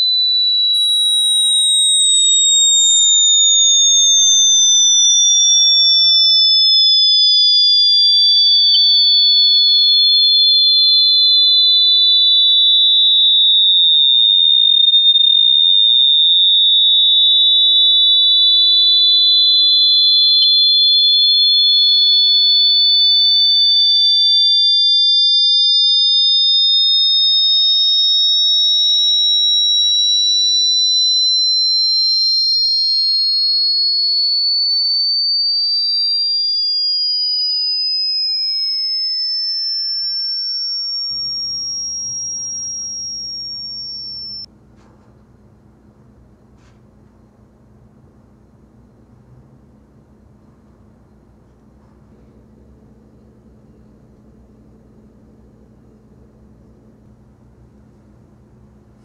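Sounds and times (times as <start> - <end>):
high-pitched electronic sine tones gliding: 0.0 - 44.5.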